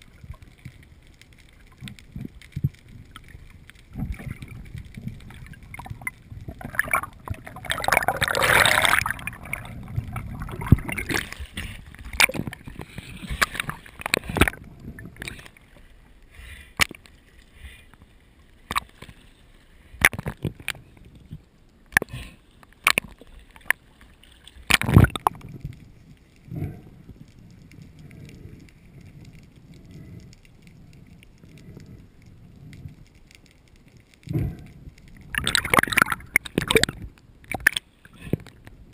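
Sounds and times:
water gurgling and sloshing: 0.0s - 38.9s
rush of water noise: 3.9s - 15.6s.

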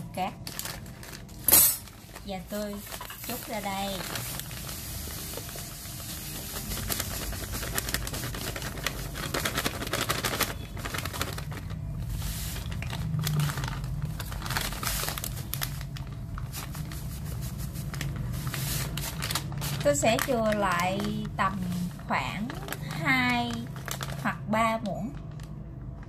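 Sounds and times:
plastic bag crinkling: 0.1s - 26.0s
sugar pouring into metal bowl: 3.0s - 10.6s.

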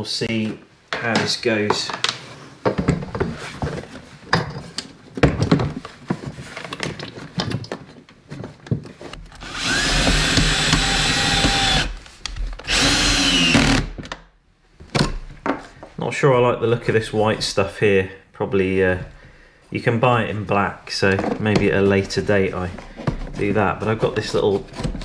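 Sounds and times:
cordless drill running: 9.4s - 12.0s, 12.7s - 14.0s.

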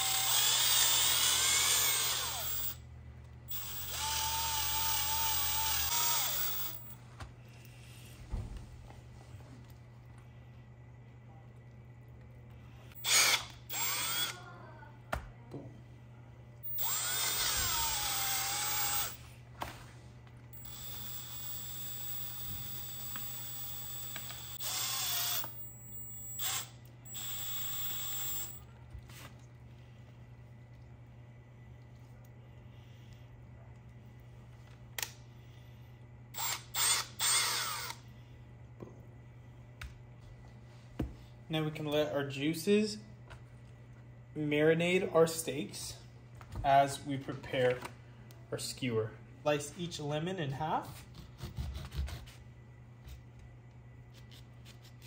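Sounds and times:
cordless drill motor whining: 0.0s - 2.8s, 3.5s - 7.0s, 13.0s - 14.4s, 16.6s - 19.2s, 20.6s - 28.6s, 36.4s - 38.0s.

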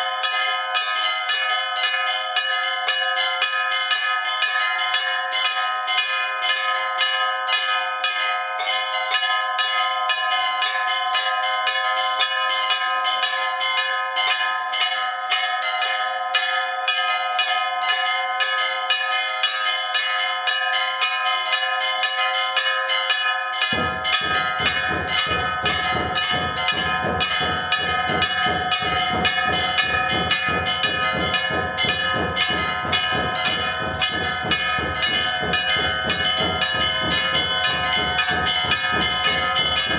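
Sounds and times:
temple bells ringing rapidly: 0.0s - 39.9s
low rapid beating: 23.8s - 39.9s.

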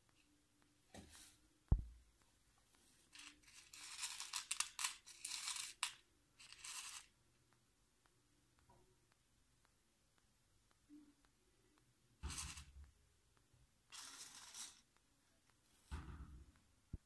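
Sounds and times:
low thump: 1.7s - 2.0s.

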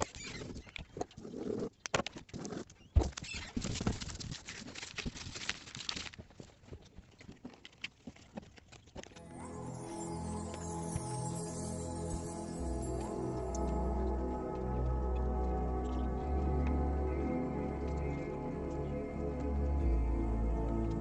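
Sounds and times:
plastic film crinkling: 3.2s - 6.5s
soft music: 9.2s - 21.0s.

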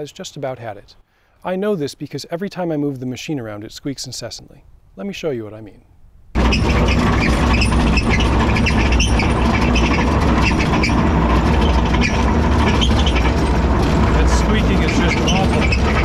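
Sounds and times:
excavator diesel engine running: 6.4s - 16.0s
high squeak of excavator tracks: 6.4s - 16.0s.

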